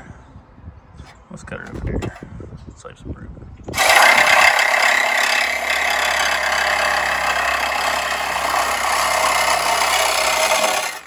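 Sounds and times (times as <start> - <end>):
reciprocating saw cutting metal pipe: 3.8 - 11.0.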